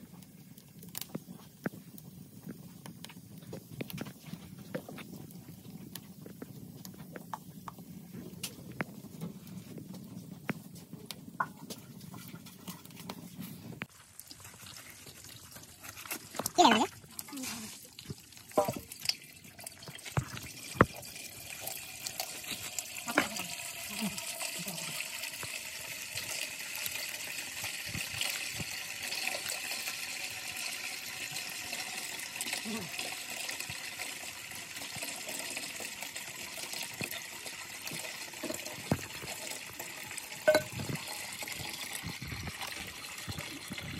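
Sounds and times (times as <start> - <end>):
fire crackling and popping: 0.0 - 43.9
running water rushing: 34.9 - 43.9.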